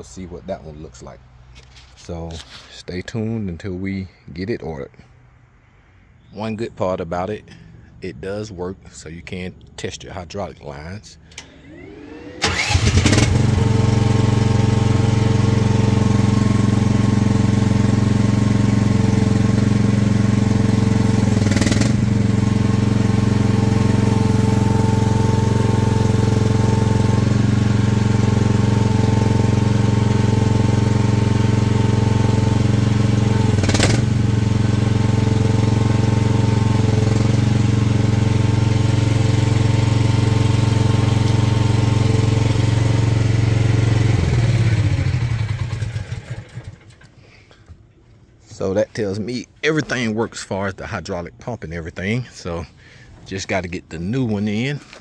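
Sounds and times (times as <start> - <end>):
excavator engine running: 11.3 - 48.8.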